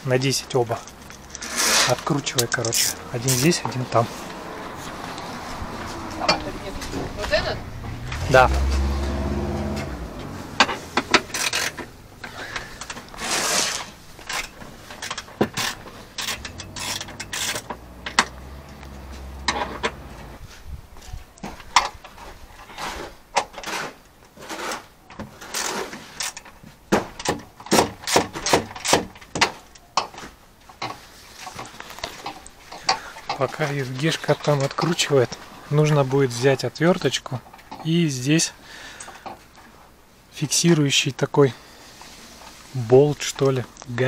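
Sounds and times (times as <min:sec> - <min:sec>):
ratchet wrench clicking: 0:15.5 - 0:18.2.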